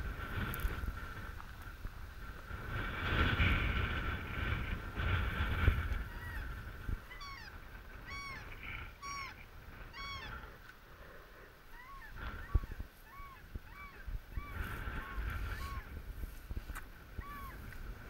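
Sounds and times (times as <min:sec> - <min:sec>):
geese honking: 0:07.1 - 0:10.4.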